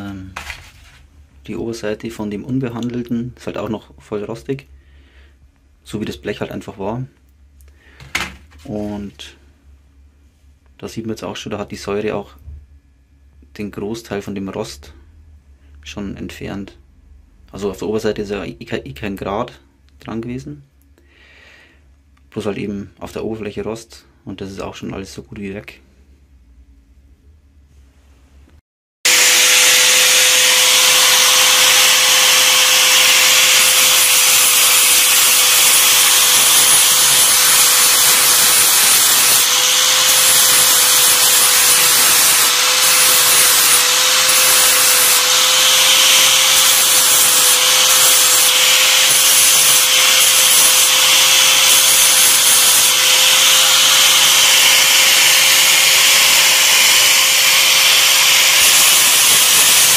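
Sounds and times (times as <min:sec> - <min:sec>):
angle grinder grinding steel: 0:29.1 - 0:59.9.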